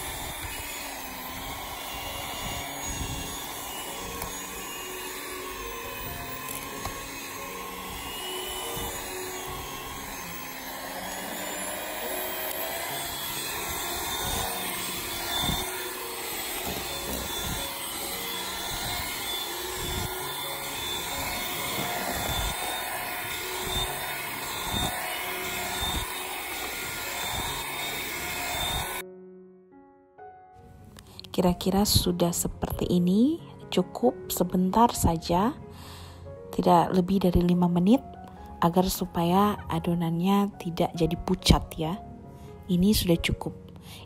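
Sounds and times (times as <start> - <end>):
electric hand mixer running: 0.0 - 29.0
mixer beaters knocking: 0.0 - 29.0.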